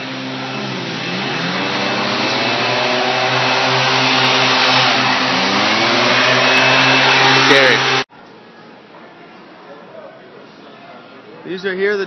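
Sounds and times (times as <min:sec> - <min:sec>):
leaf blower running: 0:00.0 - 0:08.0.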